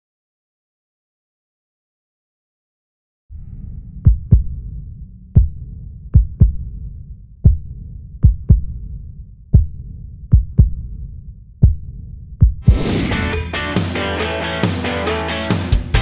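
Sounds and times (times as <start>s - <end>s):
low rumbling drone: 3.3s - 13.6s
heartbeat thumps: 3.6s - 13.3s.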